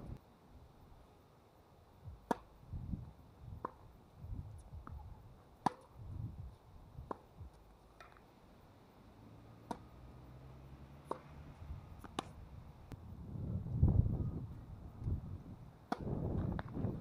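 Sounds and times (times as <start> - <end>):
racket hitting tennis ball: 2.2 - 2.5, 5.6 - 6.0, 9.6 - 10.1, 10.9 - 12.4, 15.9 - 16.8
tennis ball bouncing: 2.2 - 2.5, 3.6 - 3.8, 5.6 - 6.0, 7.1 - 8.2, 9.6 - 12.4, 15.9 - 16.8.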